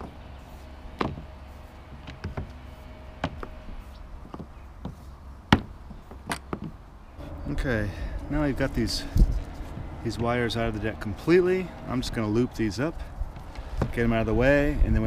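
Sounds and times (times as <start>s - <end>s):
cables knocking against fiberglass deck: 1.0s - 1.3s, 4.2s - 6.8s.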